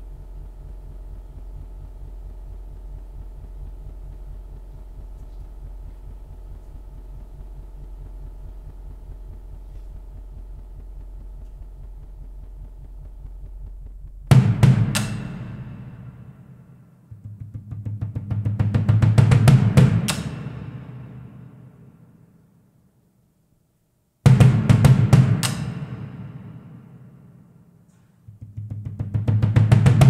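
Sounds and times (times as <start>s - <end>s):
steady low hum: 0.0s - 30.0s
tom-tom strikes: 13.8s - 22.4s, 24.3s - 30.0s.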